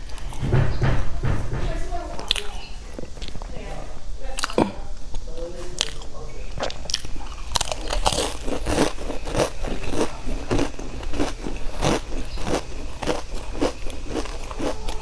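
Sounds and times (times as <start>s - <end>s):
potato chips crunching: 5.8s - 15.0s.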